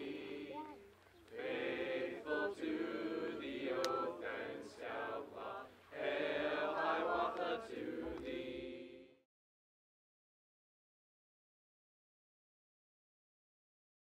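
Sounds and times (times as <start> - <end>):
group singing in chorus: 0.0 - 9.3.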